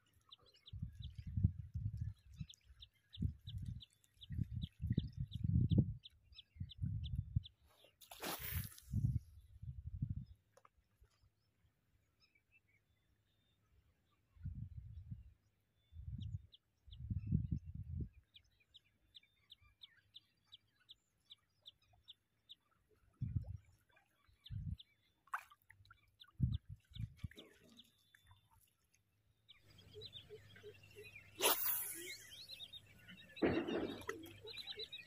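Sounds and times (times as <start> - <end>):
bird chirping: 29.5 - 35.0.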